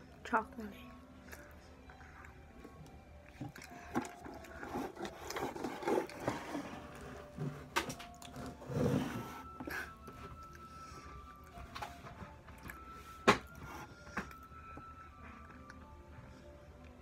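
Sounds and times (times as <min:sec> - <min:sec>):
chewing with wet mouth clicks: 0:01.1 - 0:06.3.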